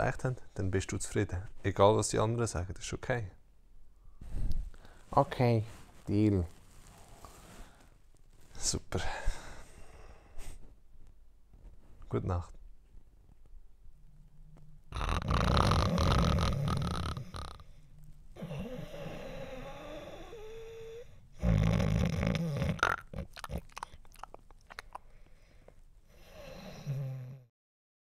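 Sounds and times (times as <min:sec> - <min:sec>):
man snoring: 0:14.9 - 0:17.7, 0:18.4 - 0:23.1, 0:26.2 - 0:27.5.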